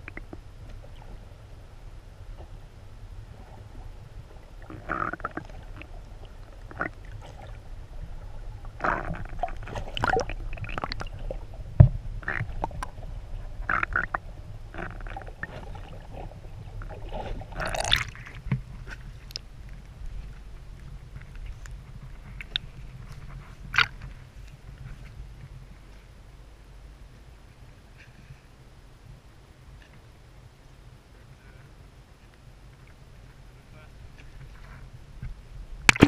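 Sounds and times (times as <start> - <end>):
water gurgling and sloshing: 0.0 - 31.1, 31.7 - 36.0
underwater low rumble: 0.0 - 36.0
water splashing: 3.3 - 19.4, 35.8 - 36.0.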